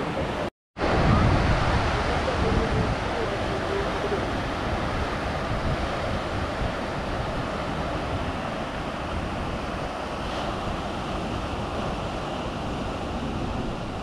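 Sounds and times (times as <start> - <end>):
ocean surf washing ashore: 0.0 - 14.0
wind on microphone: 0.0 - 14.0.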